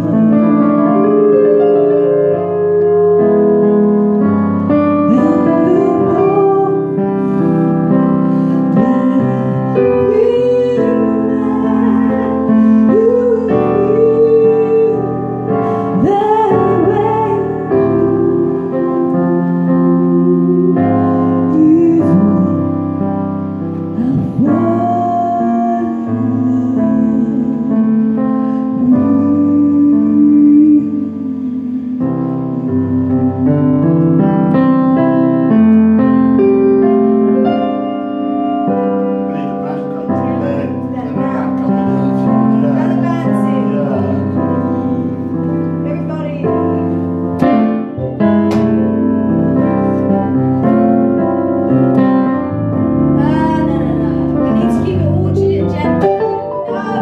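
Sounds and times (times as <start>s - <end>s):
digital piano chords: 0.0s - 57.0s
person singing slow melody: 4.7s - 23.0s, 23.9s - 34.6s.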